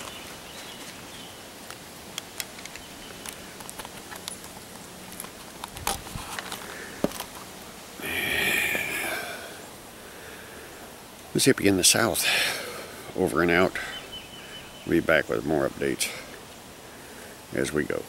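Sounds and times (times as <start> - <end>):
branches scraping and rustling: 0.0 - 8.0.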